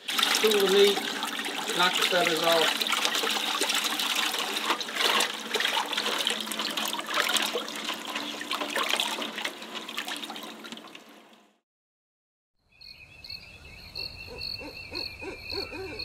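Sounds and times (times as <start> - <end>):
running water splashing: 0.0 - 11.4.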